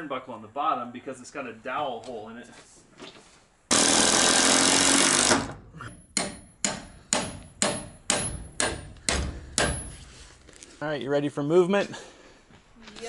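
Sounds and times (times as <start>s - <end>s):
cordless drill driving screw: 3.7s - 5.6s
hammer striking metal stake: 5.9s - 10.0s.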